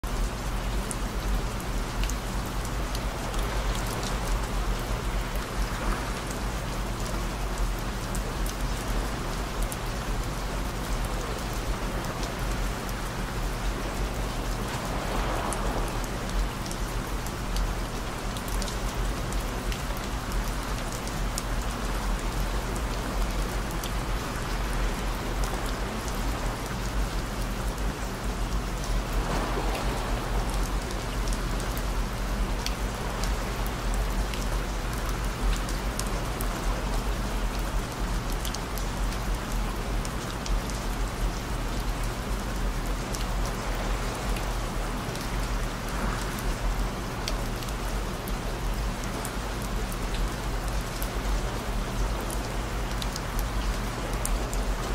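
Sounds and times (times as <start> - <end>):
steady rain: 0.0 - 54.9.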